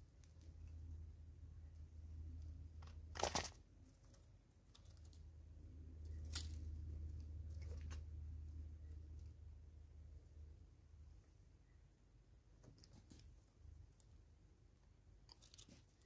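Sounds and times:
low steady hum: 0.0 - 16.0
plastic bag crinkling: 3.1 - 3.6.

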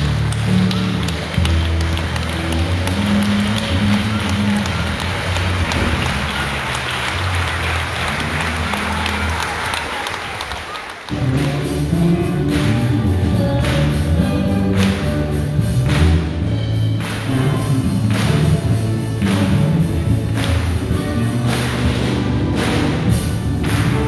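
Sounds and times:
applause: 0.0 - 11.8, 12.5 - 12.9, 14.7 - 15.1, 15.8 - 16.3, 17.0 - 24.0
music with strong bass line: 11.2 - 24.0.

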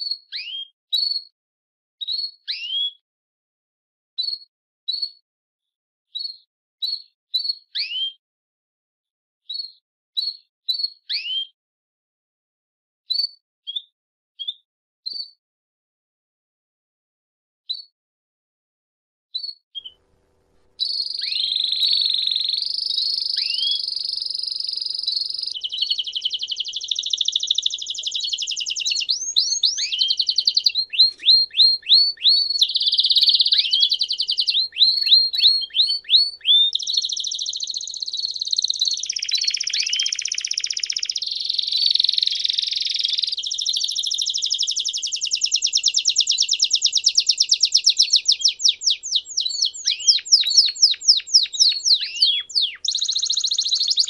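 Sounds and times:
canary singing trills: 19.4 - 54.0.

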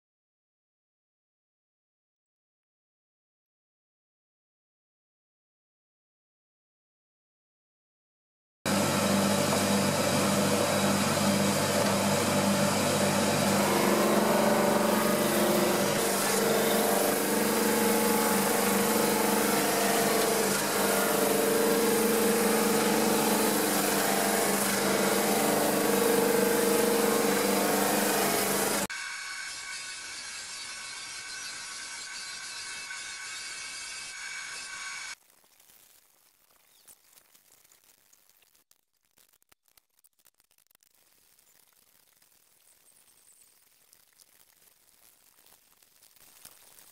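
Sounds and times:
drum sander running: 8.7 - 35.2.

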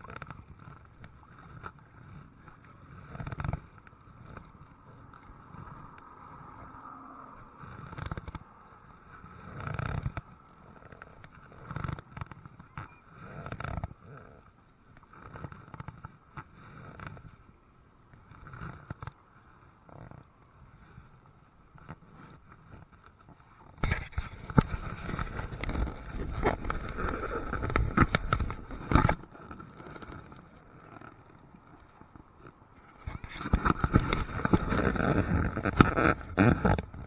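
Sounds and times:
paddle strokes in water: 0.0 - 37.0.

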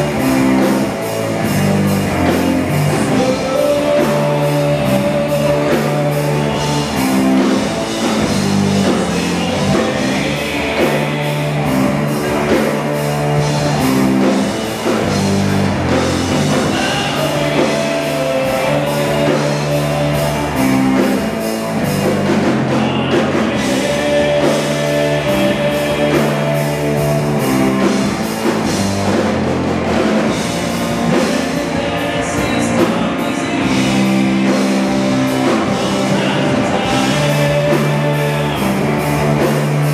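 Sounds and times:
bass guitar: 0.0 - 39.9
drum kit: 0.0 - 39.9
electric guitar: 0.0 - 39.9.

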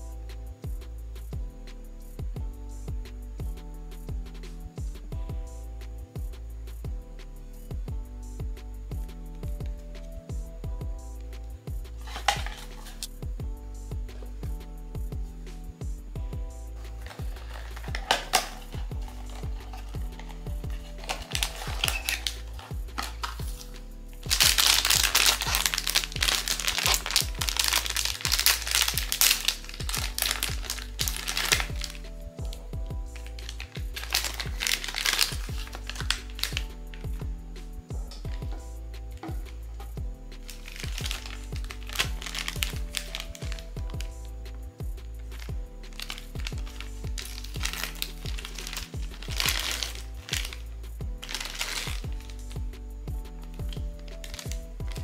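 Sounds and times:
background music: 0.0 - 55.0
plastic wrapping crinkling: 12.0 - 13.1, 16.8 - 37.1, 39.2 - 44.1, 45.2 - 52.6, 53.5 - 55.0.

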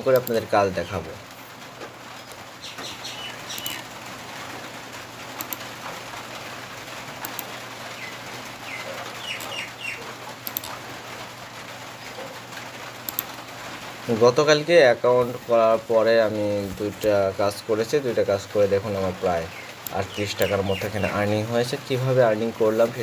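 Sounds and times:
computer mouse clicks: 0.2 - 0.4, 3.6 - 3.8, 5.4 - 5.6, 7.2 - 7.5, 10.4 - 10.8, 13.1 - 13.3
birds calling: 1.9 - 4.4, 6.9 - 11.3, 15.4 - 23.0.

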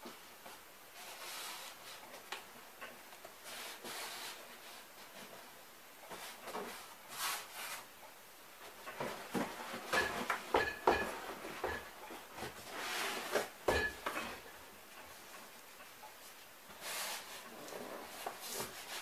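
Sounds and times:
cardboard rubbing and sliding: 1.0 - 2.1, 3.4 - 5.3, 6.1 - 7.9, 12.5 - 13.5.

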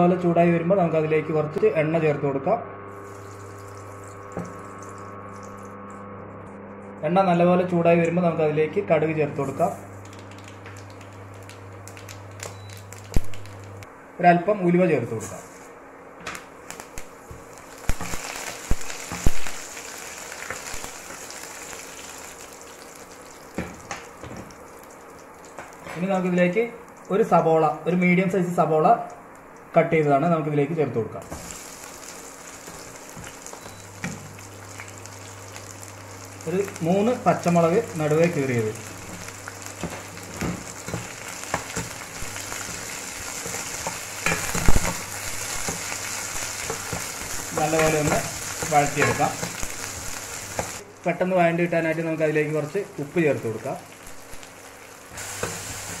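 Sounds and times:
seeds sizzling in hot oil: 2.9 - 5.8, 10.0 - 13.9, 16.6 - 26.0, 31.2 - 50.9, 51.9 - 56.0.

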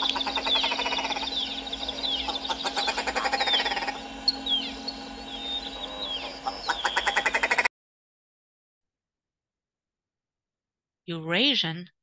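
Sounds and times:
ptarmigan calling: 0.0 - 7.7.

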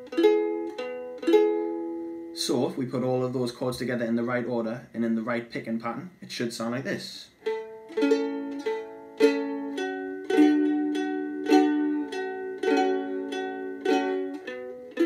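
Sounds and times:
ukulele picking and strumming: 0.0 - 3.1, 7.4 - 15.0.

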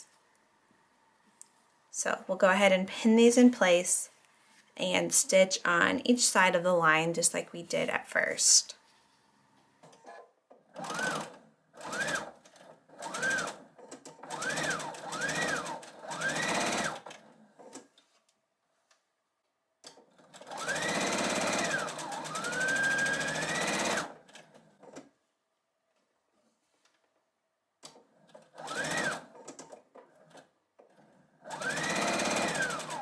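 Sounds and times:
sewing machine stitching: 9.8 - 17.9, 19.9 - 25.2, 27.9 - 33.0.

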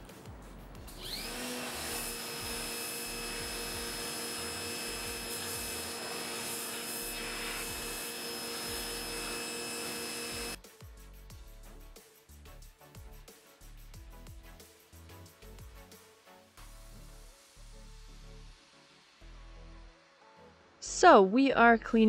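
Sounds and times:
electric pressure washer whine: 0.9 - 10.6.

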